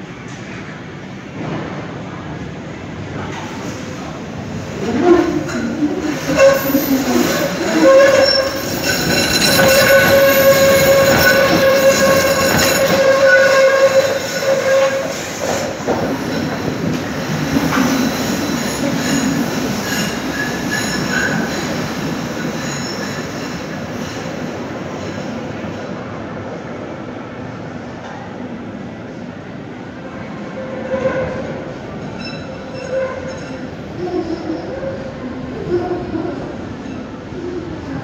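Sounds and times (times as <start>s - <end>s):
tram rumble: 0.0s - 38.0s
tram wheels squealing: 4.8s - 25.7s, 30.1s - 35.7s.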